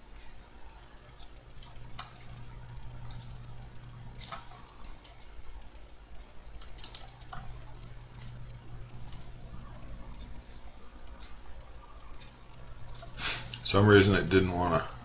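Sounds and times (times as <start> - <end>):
faint high-pitched whine: 0.0 - 15.0
low electrical hum: 0.0 - 15.0
computer mouse buttons clicking: 1.2 - 3.4, 4.1 - 5.3, 6.6 - 10.4, 11.1 - 13.6.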